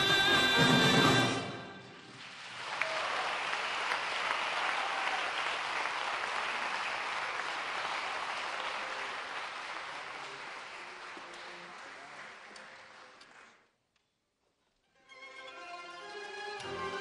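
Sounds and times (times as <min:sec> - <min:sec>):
audience applauding: 0:02.0 - 0:13.7.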